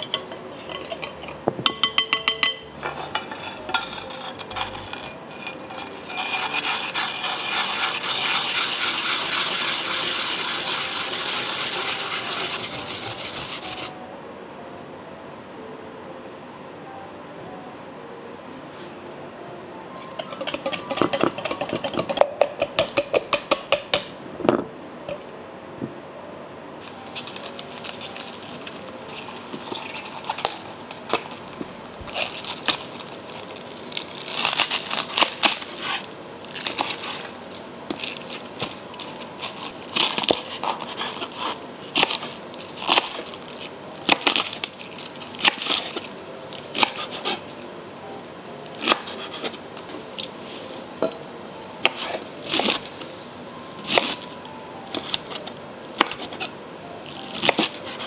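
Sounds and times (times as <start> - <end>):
knife chopping cabbage on board: 48.8 - 49.6.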